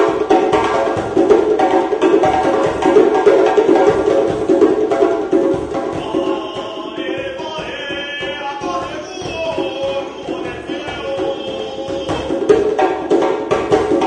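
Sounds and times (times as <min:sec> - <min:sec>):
djembe drums: 0:00.0 - 0:14.0
men singing: 0:05.8 - 0:13.1.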